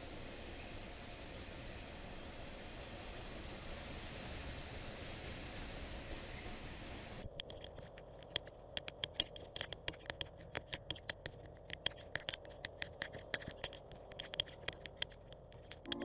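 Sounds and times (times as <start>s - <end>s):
faint rain hiss: 0.0s - 7.3s.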